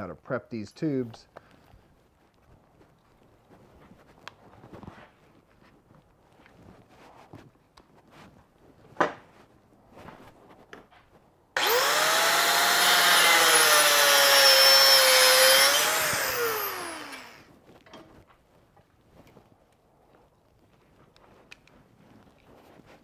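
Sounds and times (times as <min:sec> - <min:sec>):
angle grinder cutting metal tube: 0:11.6 - 0:17.4.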